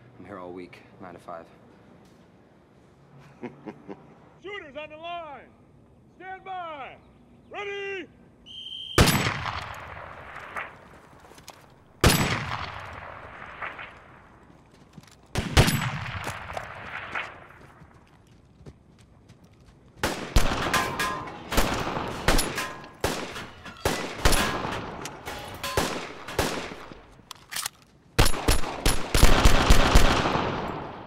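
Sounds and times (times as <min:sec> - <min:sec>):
gunshots echoing: 0:09.0 - 0:10.9, 0:12.0 - 0:14.4, 0:15.3 - 0:17.7, 0:20.0 - 0:27.1, 0:28.2 - 0:31.0.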